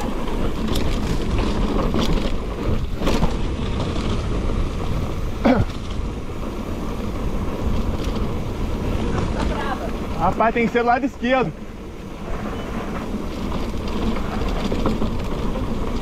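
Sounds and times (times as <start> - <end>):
bike knocks and rattles: 0.0 - 11.0, 12.9 - 16.0.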